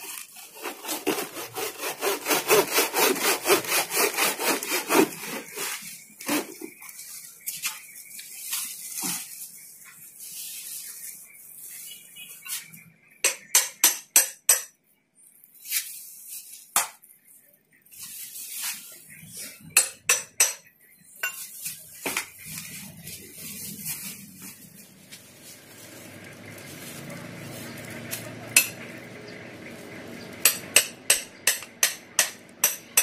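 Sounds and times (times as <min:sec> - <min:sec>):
hammer striking metal tool: 0:13.2 - 0:14.8, 0:19.8 - 0:21.4, 0:28.6 - 0:28.8, 0:30.4 - 0:33.0.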